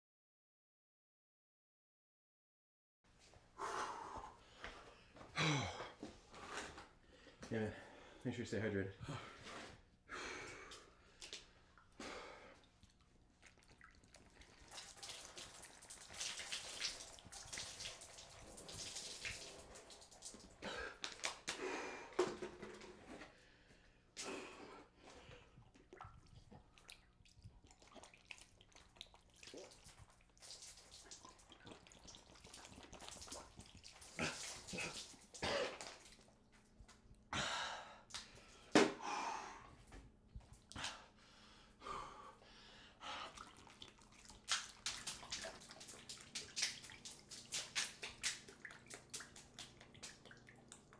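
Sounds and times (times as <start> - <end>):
person breathing: 3.6 - 8.2, 20.6 - 22.3, 23.3 - 25.5, 37.4 - 39.8, 40.8 - 43.4
water splashing and dripping: 12.6 - 21.5, 25.7 - 36.4, 43.3 - 50.9.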